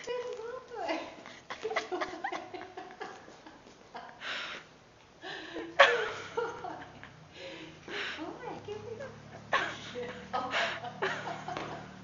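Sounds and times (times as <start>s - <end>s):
people chuckling: 1.3s - 4.4s, 9.4s - 12.0s.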